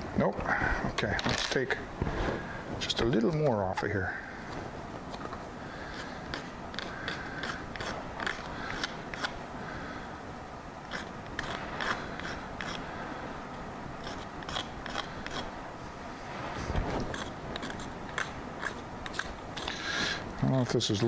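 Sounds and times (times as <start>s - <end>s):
hand tool scraping: 5.9s - 9.4s, 10.9s - 12.8s, 14.0s - 15.5s, 16.6s - 20.7s.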